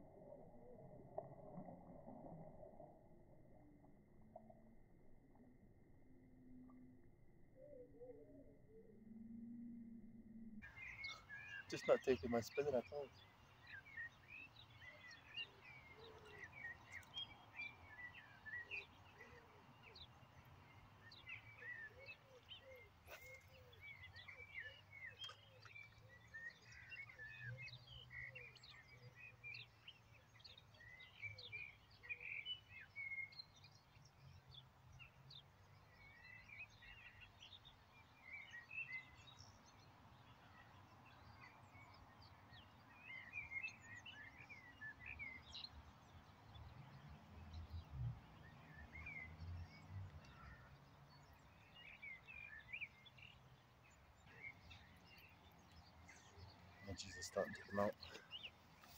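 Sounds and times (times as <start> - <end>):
birds chirping and trilling: 10.6 - 58.9
low repeated bird notes: 54.0 - 58.9.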